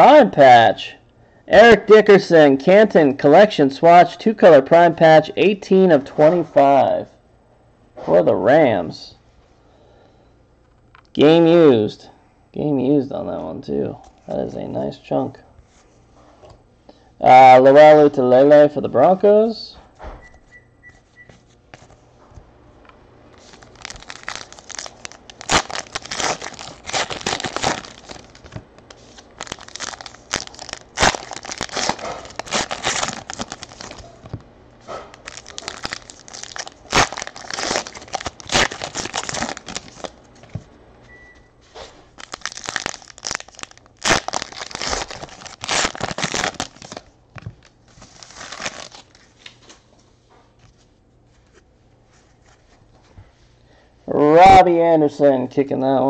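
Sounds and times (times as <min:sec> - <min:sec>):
foil wrappers crinkling and tearing: 0:23.4 - 0:34.4, 0:35.1 - 0:40.2, 0:42.1 - 0:49.7.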